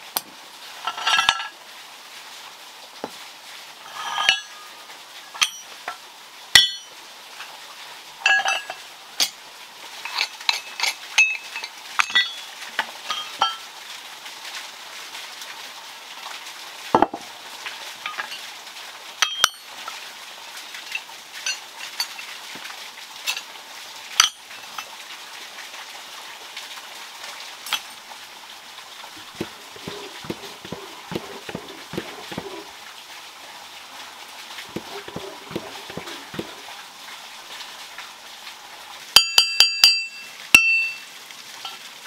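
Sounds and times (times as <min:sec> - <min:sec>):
faint steady hiss: 0:00.0 - 0:42.0
scrap metal clinking: 0:03.9 - 0:04.6, 0:29.2 - 0:32.7, 0:34.7 - 0:36.6
metal knocks: 0:29.2 - 0:32.7, 0:34.7 - 0:36.6.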